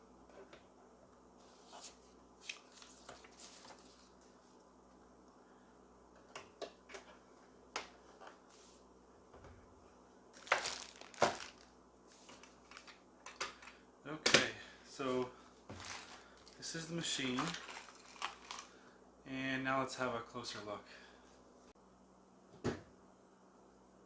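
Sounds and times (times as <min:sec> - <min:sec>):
packaging crinkling and rustling: 0:10.4 - 0:13.8, 0:15.7 - 0:18.8.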